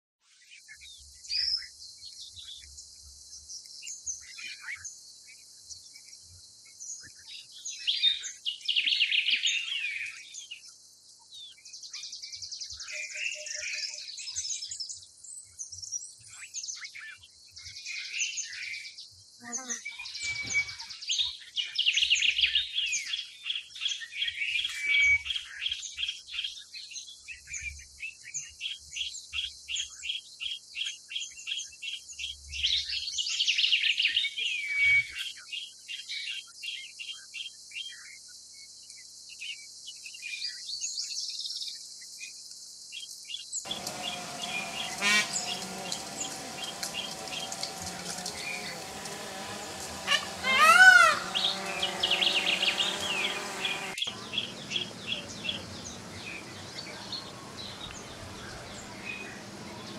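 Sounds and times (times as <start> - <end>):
small birds chirping: 0.4 - 59.9
steady hum: 43.7 - 59.9.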